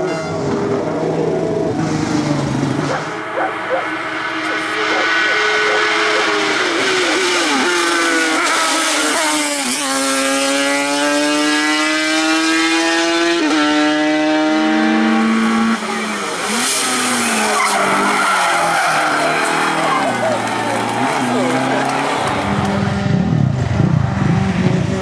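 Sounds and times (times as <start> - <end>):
car engine revving: 0.0 - 25.0
race car engine accelerating: 0.4 - 25.0
tyres squealing: 15.8 - 22.3.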